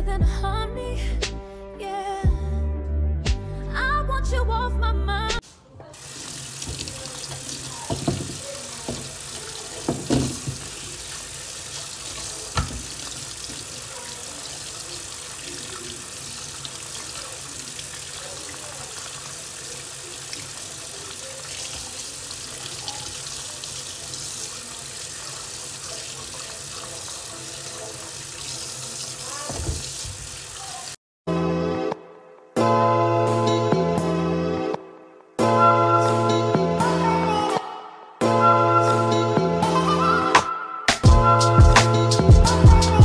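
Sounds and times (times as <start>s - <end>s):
tap water splashing into sink: 5.8s - 31.0s.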